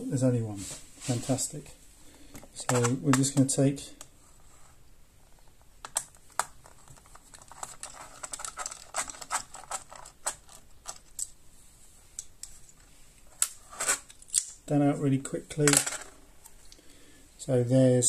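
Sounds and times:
small parts being handled: 2.4 - 3.4, 5.4 - 11.4, 15.5 - 16.8.

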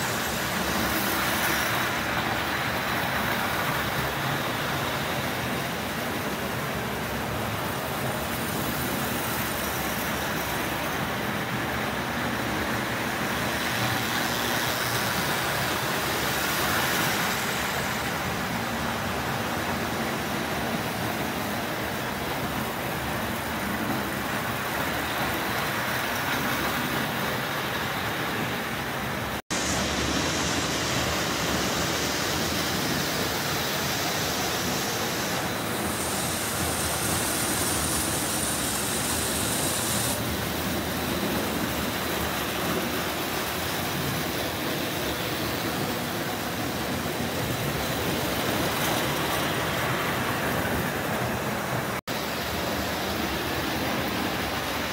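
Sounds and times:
toy electric trains running: 31.0 - 42.8.

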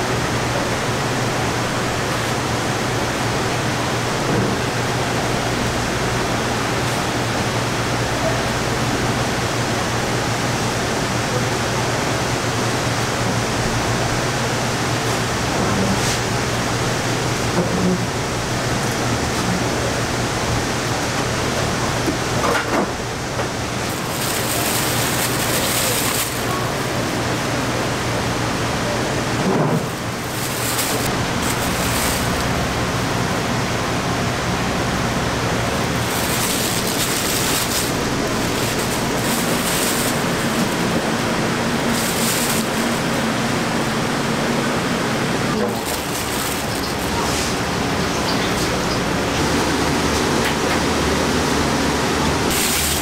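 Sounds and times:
plastic bag crinkling: 23.9 - 26.9, 29.8 - 32.7, 35.7 - 43.2, 45.5 - 47.8, 52.5 - 53.0.

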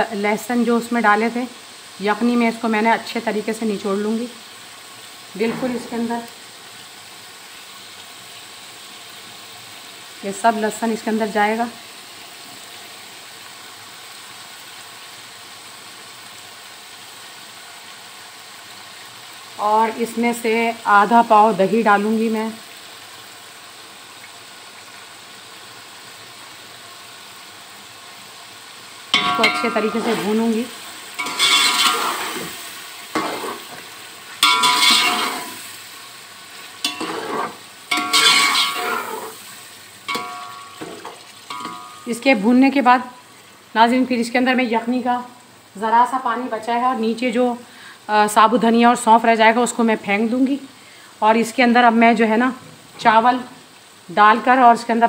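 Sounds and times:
meat sizzling in oil: 0.0 - 55.0
metal ladle scraping pot: 31.2 - 33.8, 34.4 - 35.6, 36.8 - 39.4, 40.1 - 42.1.

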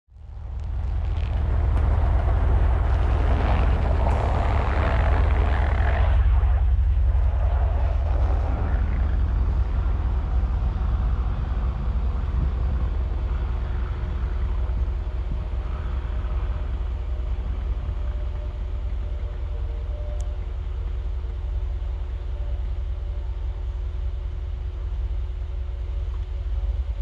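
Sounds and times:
faint steady hum: 0.1 - 27.0
vehicle engine rumble: 0.1 - 27.0.

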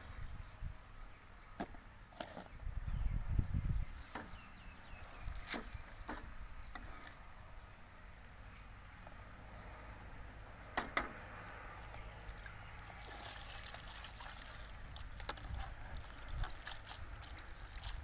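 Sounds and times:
hands sloshing greens in water: 12.2 - 18.0.

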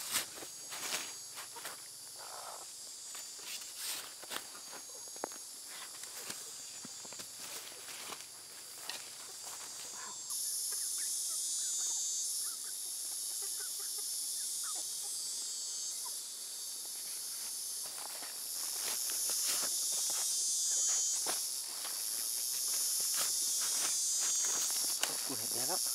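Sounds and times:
insects chirring: 0.0 - 25.9
dry soil crunching: 17.9 - 25.7.

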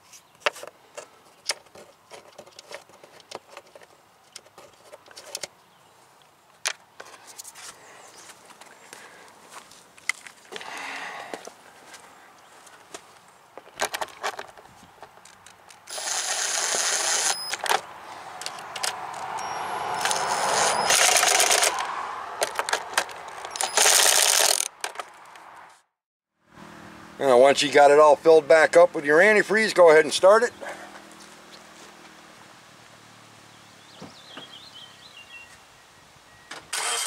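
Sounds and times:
cordless power driver spinning: 15.7 - 17.8, 18.4 - 24.8.

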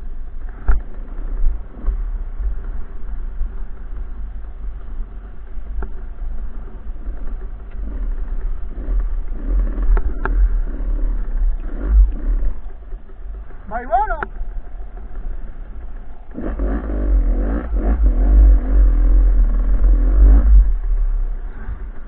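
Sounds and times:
dirt bike engine revving: 7.0 - 22.0.

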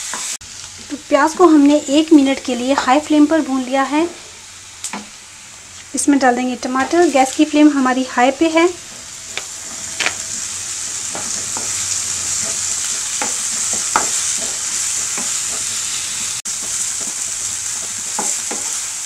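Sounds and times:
vegetables sizzling in hot oil: 0.0 - 19.0
wooden spatula scraping a pan: 8.4 - 18.9.

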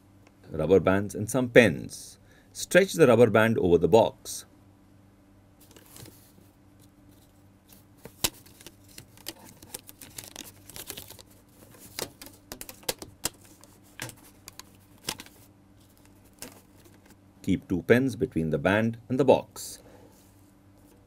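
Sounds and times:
paper rustling: 5.6 - 6.5, 7.1 - 17.2.

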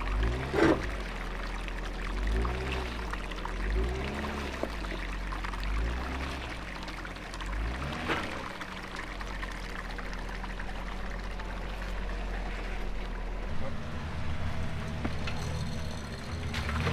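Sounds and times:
off-road vehicle engine revving: 0.0 - 1.0, 3.6 - 4.8, 7.4 - 8.7, 12.6 - 16.9.

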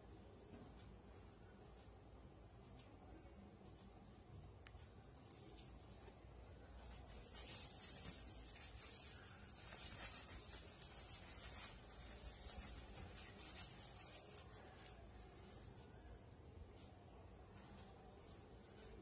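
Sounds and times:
tissue paper rustling: 6.8 - 15.0.

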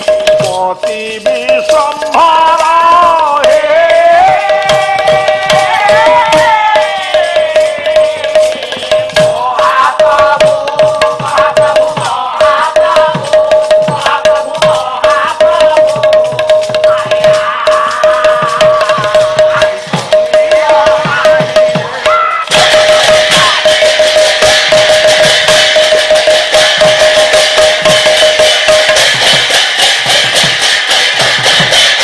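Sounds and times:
person singing a long melody: 0.0 - 23.9
brass cymbals: 0.0 - 32.0
hand drum beat: 0.0 - 32.0.

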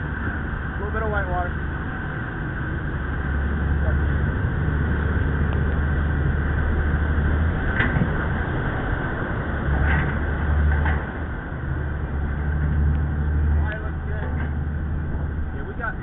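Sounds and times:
boat engines droning: 0.0 - 16.0
rush of wind and water: 0.0 - 16.0.

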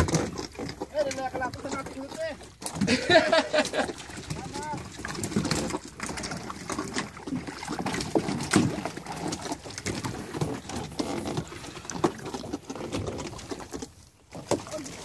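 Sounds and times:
water splashing against boat: 0.0 - 15.0.

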